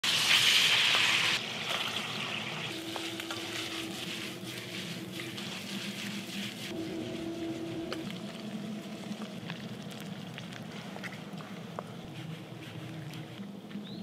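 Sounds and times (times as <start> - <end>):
food sizzling in a pan: 0.0 - 1.4
small crackles: 7.9 - 14.0.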